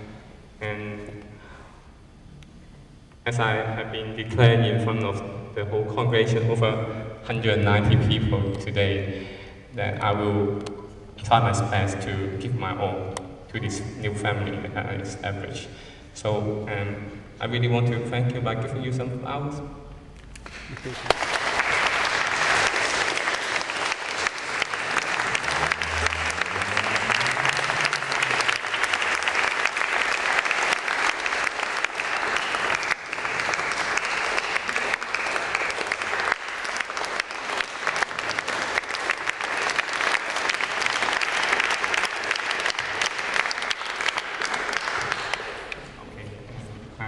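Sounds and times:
large audience applauding: 20.4 - 45.9.

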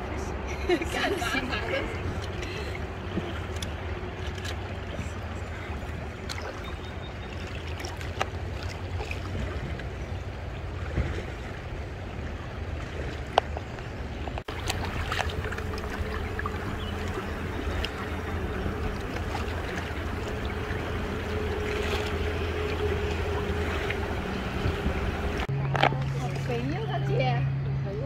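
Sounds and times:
river water around raft: 0.0 - 28.0
wind rumble on microphone: 8.1 - 28.0.

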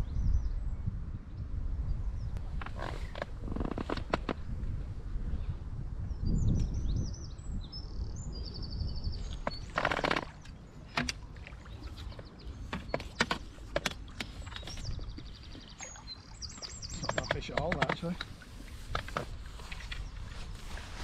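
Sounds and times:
wind rumbling on microphone: 0.0 - 21.0
birds chirping: 6.1 - 20.6
sharp clicks: 16.9 - 19.2.

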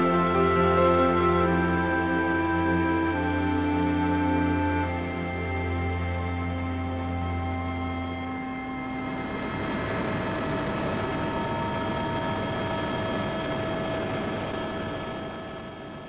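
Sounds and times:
background music: 0.0 - 10.0
helicopter cabin drone: 0.0 - 16.0
thin whining tones: 0.0 - 16.0.

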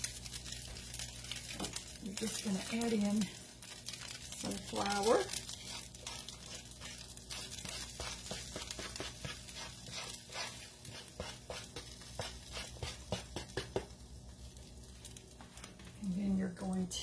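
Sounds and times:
frying sizzle with crackles: 0.0 - 17.0.

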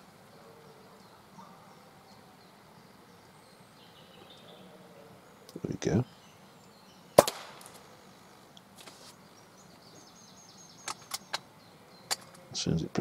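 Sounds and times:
air rifle firing crack: 7.2 - 7.8.

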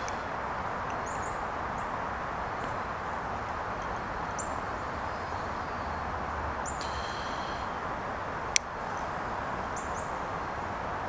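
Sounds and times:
steady outdoor hiss: 0.0 - 11.0
bird chirping: 0.9 - 2.0, 3.8 - 7.8, 8.8 - 10.2.

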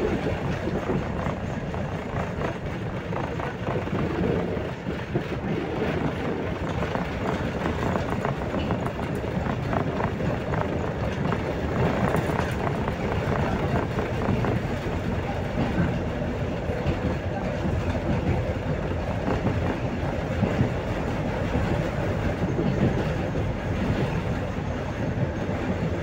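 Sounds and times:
tram wheels rumbling on track: 0.0 - 26.0.

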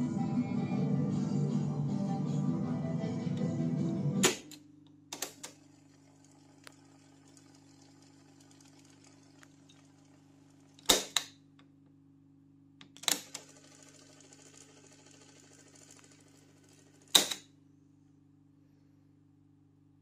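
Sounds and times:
music playback from tape: 0.0 - 4.5.

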